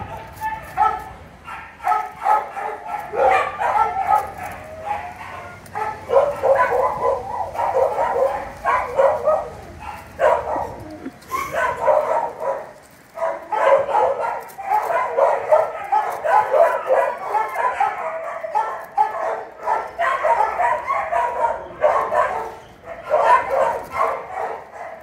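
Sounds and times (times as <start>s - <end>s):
dogs barking and yipping: 0.0s - 25.0s.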